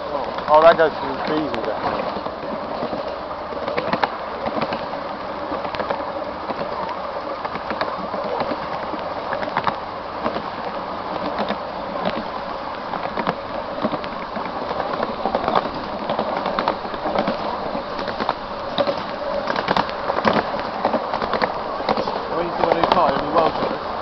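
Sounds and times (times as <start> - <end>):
train wheels rumbling on rail: 0.0 - 24.0
wheels clicking and clacking: 0.0 - 24.0.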